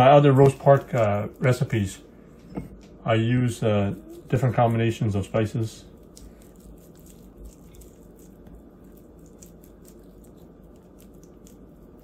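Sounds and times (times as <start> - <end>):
hand rubbing sauce into meat: 3.5 - 12.0.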